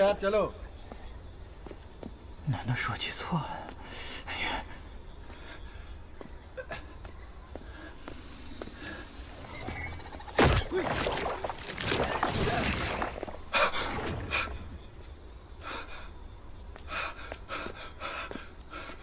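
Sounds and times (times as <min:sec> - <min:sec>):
breathing: 0:07.6 - 0:09.3.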